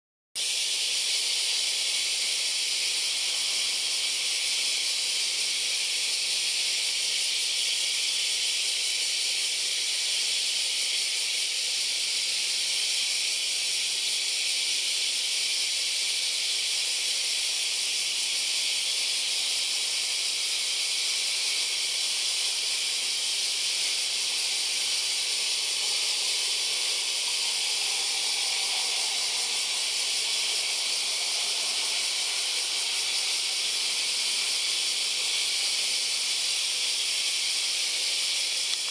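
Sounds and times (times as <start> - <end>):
loud steady high hiss: 0.4 - 38.9
distant jet engines on take-off: 25.7 - 34.5.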